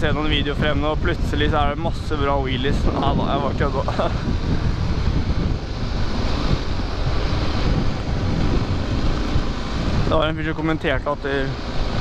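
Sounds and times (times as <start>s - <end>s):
road noise: 0.0s - 12.0s
wind rushing over microphone: 0.0s - 12.0s
motorcycle engine: 2.8s - 12.0s.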